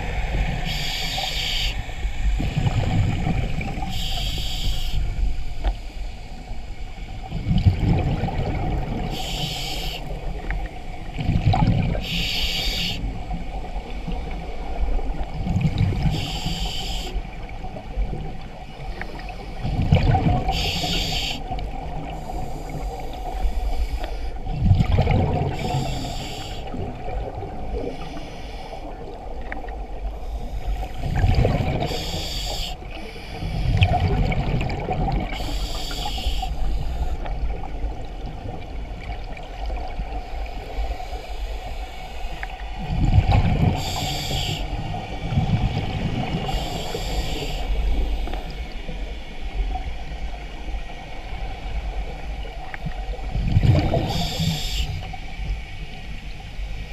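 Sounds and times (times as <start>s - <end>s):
low underwater noise: 0.0s - 56.9s
exhaled bubbles: 24.5s - 27.9s, 31.0s - 32.3s, 33.6s - 36.5s, 42.8s - 44.7s, 53.2s - 54.8s
hissing regulator inhalation: 25.6s - 26.8s, 35.3s - 37.3s, 43.8s - 44.8s, 46.4s - 48.7s, 54.0s - 55.1s.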